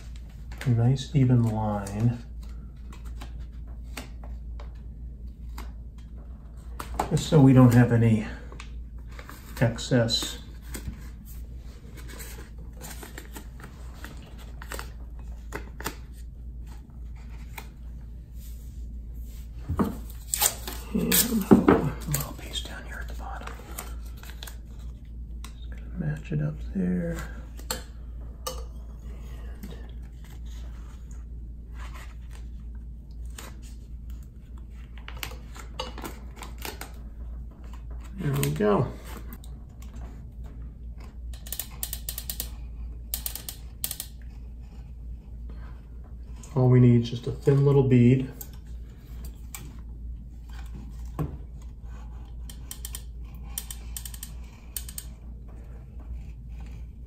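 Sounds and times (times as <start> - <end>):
steady low hum: 0.0 - 57.0
tape crackling and ripping: 20.1 - 22.6.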